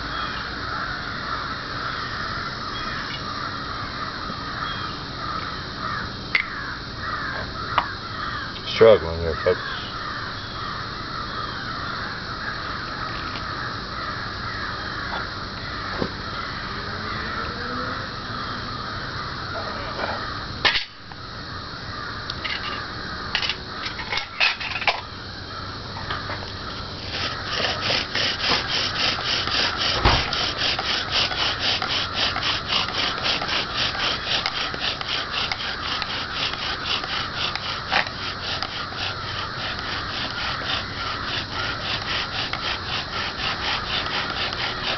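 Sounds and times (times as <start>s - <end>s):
bow drill rhythmic rasping: 26.0s - 44.9s
scattered knocks and clicks: 27.1s - 33.5s, 34.3s - 40.8s.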